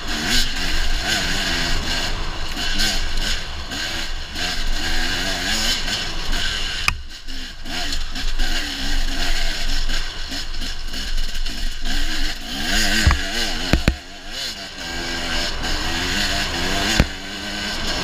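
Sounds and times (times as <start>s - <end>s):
dirt bike engine revving: 0.0s - 18.0s
sharp knock: 13.0s - 14.0s.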